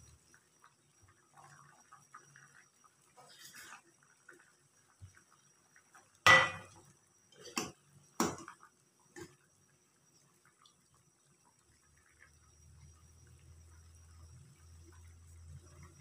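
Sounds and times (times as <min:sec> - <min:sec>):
ladle clanking on metal saucepan: 0:06.3 - 0:06.7.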